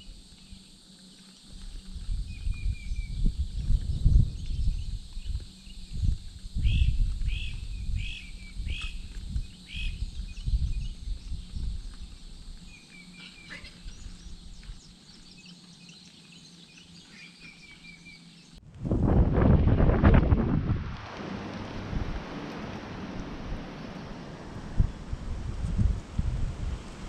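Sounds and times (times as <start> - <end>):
wind rumble on microphone: 1.5 - 15.4, 18.6 - 27.0
songbird calling: 2.2 - 18.6.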